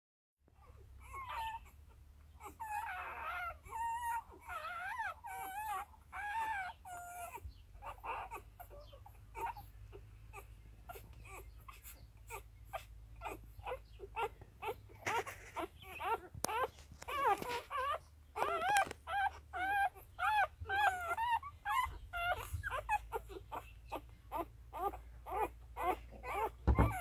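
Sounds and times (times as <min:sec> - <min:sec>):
puppies squealing and whimpering: 0:00.5 - 0:27.0
puppies suckling clicks: 0:14.2 - 0:27.0.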